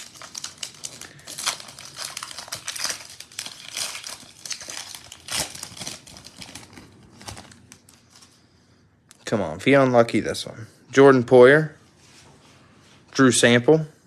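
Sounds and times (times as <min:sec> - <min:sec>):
foil wrapper crackling: 0:00.0 - 0:08.3.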